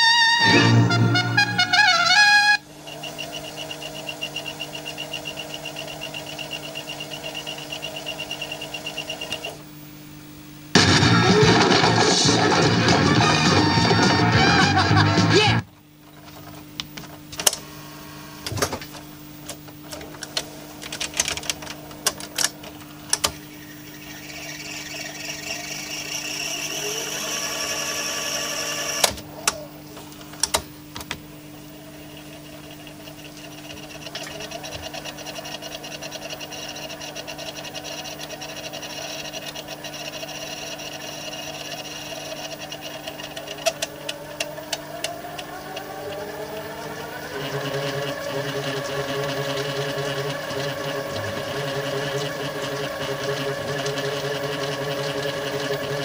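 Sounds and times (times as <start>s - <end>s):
tape reels whirring: 0.0s - 17.7s, 18.4s - 56.0s
tape machine clicks and clunks: 28.7s - 31.2s.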